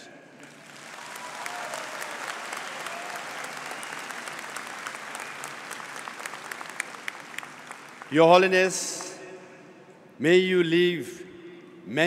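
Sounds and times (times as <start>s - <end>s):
audience applauding: 0.4s - 8.1s.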